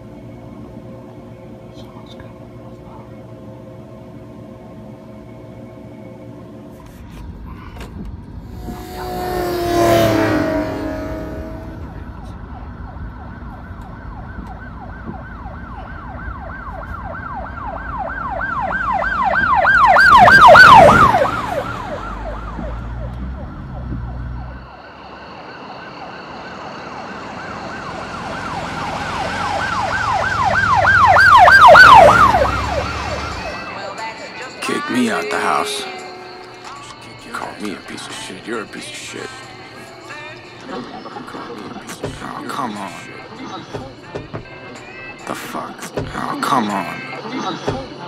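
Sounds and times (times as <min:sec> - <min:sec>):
emergency siren yelping: 0:08.4 - 0:37.6.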